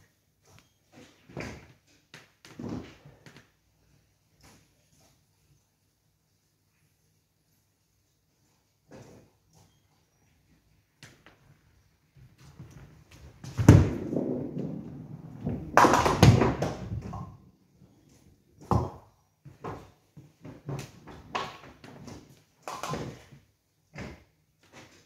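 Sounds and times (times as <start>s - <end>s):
bowling ball rolling: 13.2s - 17.5s
bowling pins clattering: 13.4s - 17.5s.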